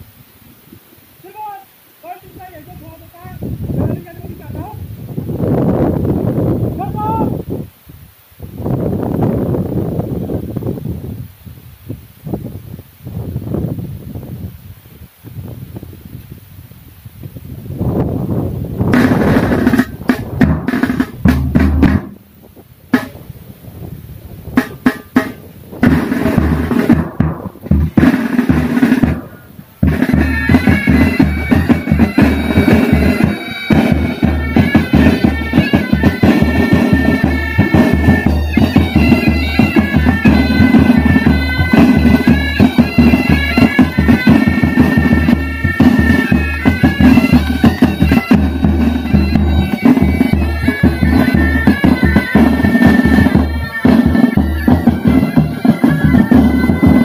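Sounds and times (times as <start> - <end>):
snare and bass drums: 18.8 - 22.3, 22.9 - 23.4, 24.5 - 57.0
bagpipes drone and melody: 28.0 - 57.0.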